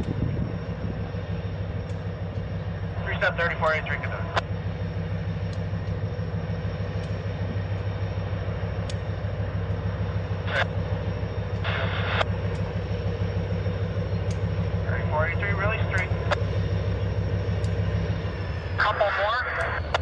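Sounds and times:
diesel locomotive engine drone: 0.0 - 20.0
sharp clicks: 1.8 - 2.5, 8.8 - 9.1, 14.2 - 14.6, 17.5 - 18.0, 19.5 - 20.0.

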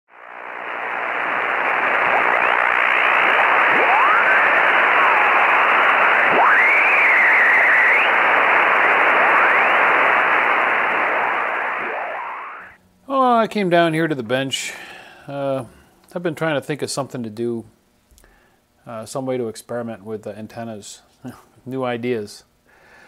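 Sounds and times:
gliding radio whistles: 0.1 - 12.8
radio static hiss: 0.1 - 16.3.

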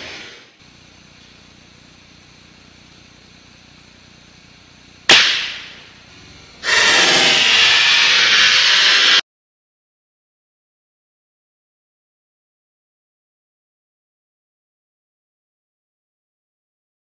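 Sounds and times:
rifle shot: 5.1 - 5.8.

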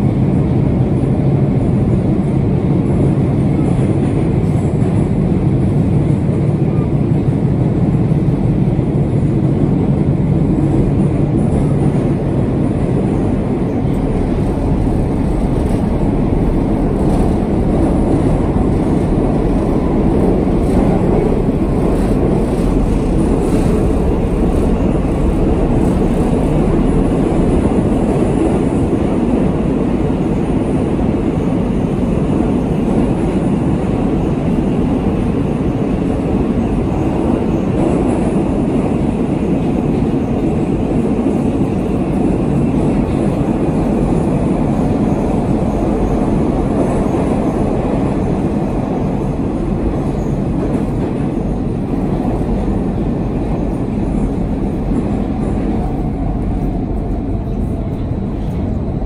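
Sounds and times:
train wheels on rails: 0.0 - 59.0.

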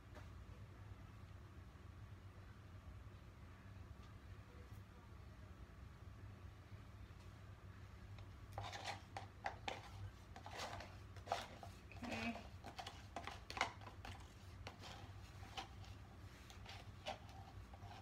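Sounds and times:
low steady hum: 0.0 - 18.0
objects clicking and tapping: 8.6 - 18.0.

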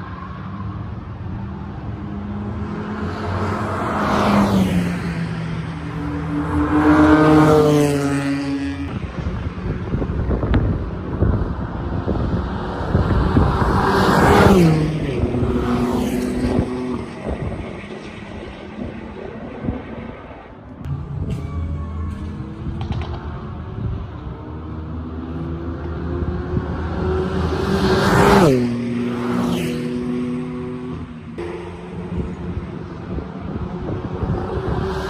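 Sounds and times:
race cars passing at speed: 0.0 - 35.0.

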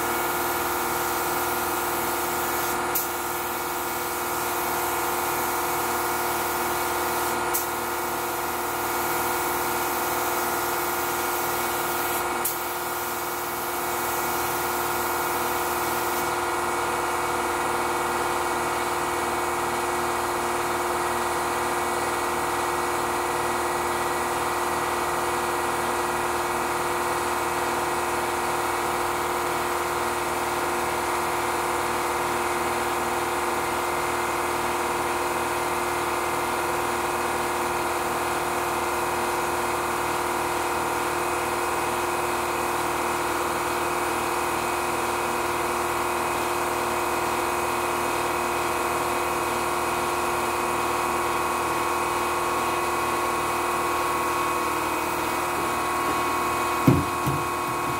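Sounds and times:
spray gun air hiss: 0.0 - 16.4, 55.0 - 57.9
air compressor motor hum: 0.0 - 57.9.

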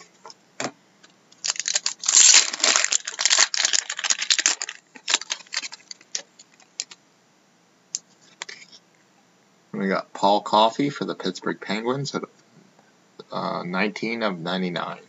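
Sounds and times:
cards clicking and rustling: 1.4 - 7.0
foil wrapper tearing and crinkling: 1.4 - 7.0.

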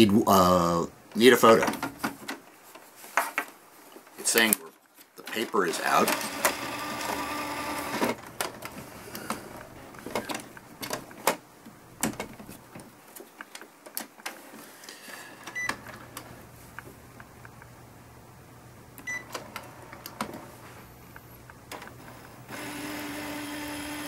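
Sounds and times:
printer mechanism whirring: 5.3 - 11.4, 19.1 - 20.7, 21.4 - 24.0.

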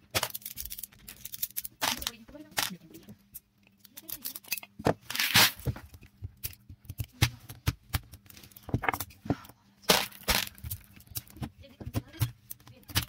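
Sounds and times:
steel balls rattling in plastic basket: 0.1 - 2.8, 9.9 - 11.4.

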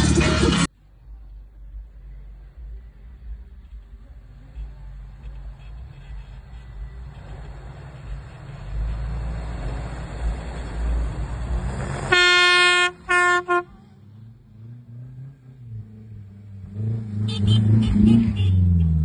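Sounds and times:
engine revving: 0.0 - 0.7, 7.0 - 19.0
engines rumbling: 0.0 - 19.0
car horn honking: 4.6 - 9.2, 12.1 - 14.0, 17.0 - 19.0.

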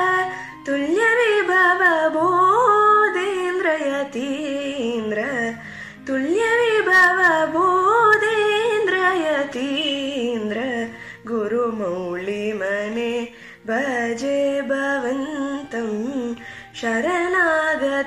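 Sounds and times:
woman singing devotional song: 0.0 - 18.0.

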